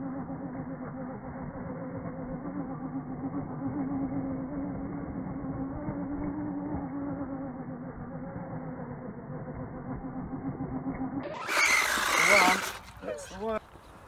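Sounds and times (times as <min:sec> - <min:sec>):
toy truck motor humming: 0:00.0 - 0:13.3.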